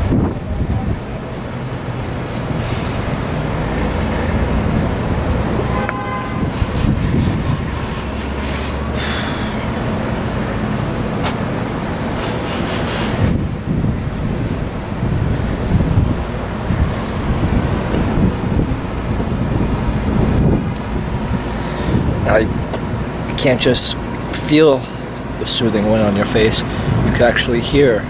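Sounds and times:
wind buffeting microphone: 0:00.0 - 0:28.0
horn toot: 0:05.6 - 0:09.6.

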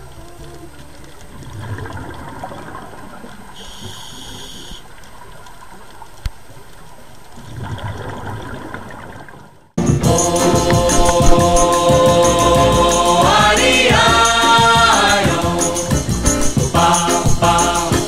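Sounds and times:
regulator bubbles exhaled underwater: 0:00.2 - 0:04.5, 0:07.4 - 0:09.7
underwater hiss: 0:10.1 - 0:18.0.

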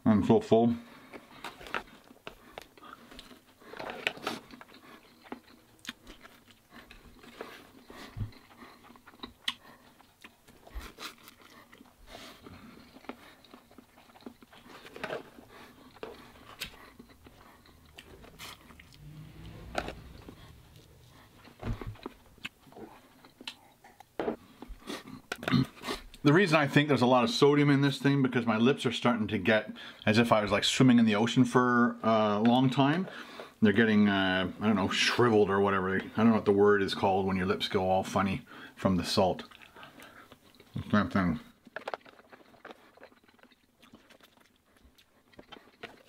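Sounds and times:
person chewing noodles: 0:00.9 - 0:26.3, 0:39.4 - 0:46.0.

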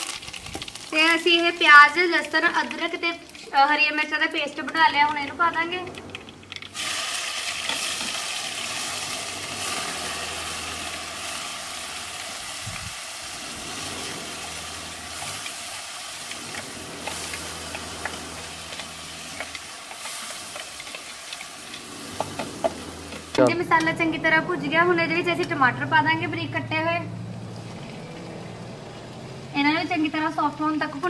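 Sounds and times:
paste sizzling in hot oil: 0:00.0 - 0:05.0, 0:05.9 - 0:23.4
wooden spatula scraping: 0:13.4 - 0:23.4.

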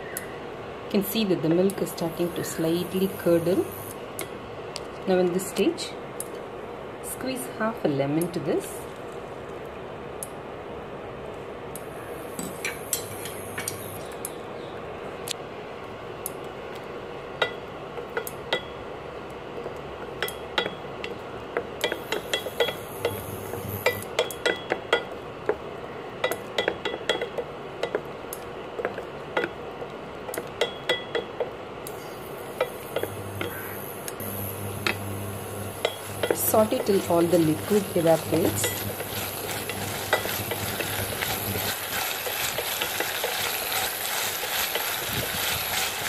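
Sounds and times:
simmering pan hiss: 0:00.0 - 0:09.4, 0:11.6 - 0:15.9, 0:16.6 - 0:27.2, 0:30.3 - 0:46.0
wooden spatula scraping pan: 0:35.8 - 0:46.0.

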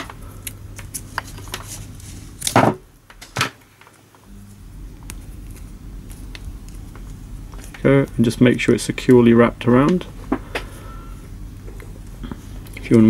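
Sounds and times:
tape clicks and rustles: 0:00.0 - 0:04.3, 0:05.0 - 0:08.6.

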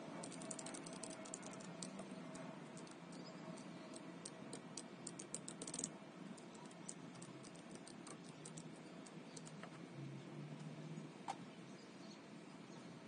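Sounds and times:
mechanical keyboard key clicks: 0:00.2 - 0:03.2, 0:03.9 - 0:08.7.

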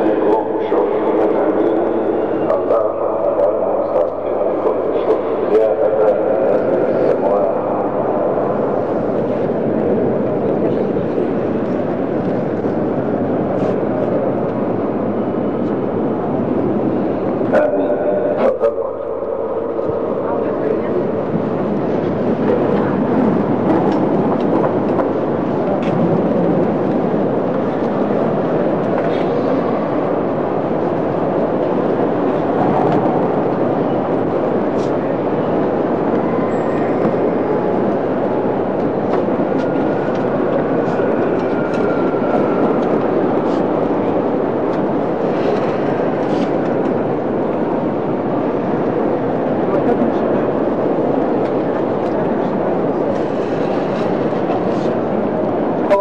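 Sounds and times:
crowd murmur in hall: 0:00.0 - 0:56.0.

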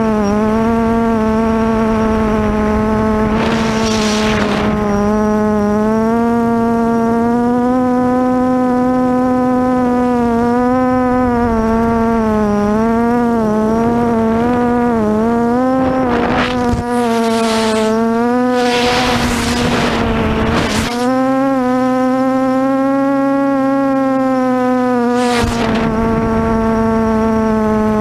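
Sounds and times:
low hum: 0:00.0 - 0:22.8
quadcopter motors whining: 0:00.0 - 0:23.0, 0:23.8 - 0:28.0
wind noise rushing: 0:01.7 - 0:05.2, 0:15.7 - 0:21.0.

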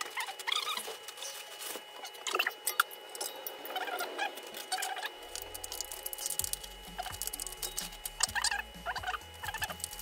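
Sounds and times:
plastic packaging crinkling: 0:00.0 - 0:02.3, 0:04.4 - 0:08.4, 0:09.5 - 0:10.0.

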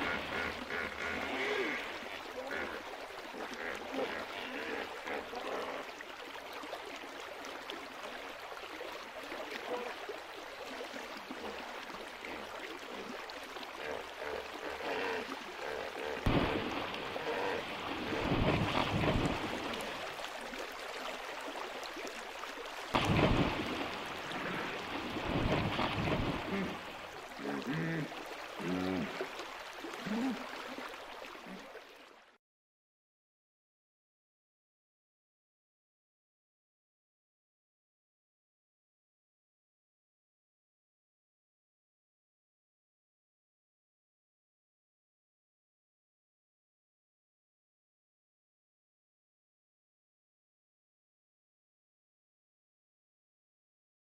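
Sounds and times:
hippos splashing in water: 0:06.8 - 0:31.8.

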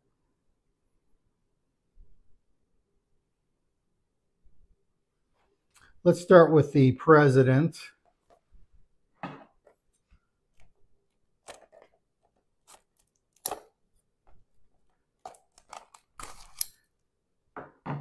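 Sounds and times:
plastic wrap crinkling: 0:11.4 - 0:13.7, 0:14.6 - 0:16.8.

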